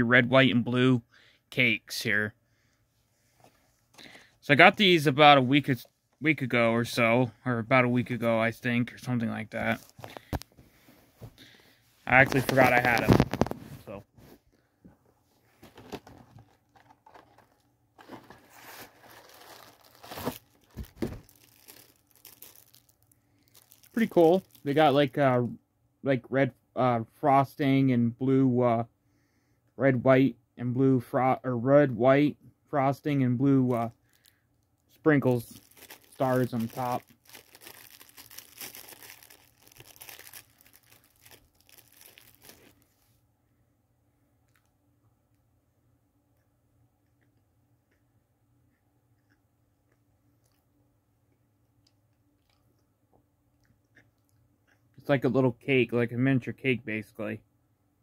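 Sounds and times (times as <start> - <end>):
packaging crinkling and tearing: 15.7 - 25.0, 35.2 - 42.9.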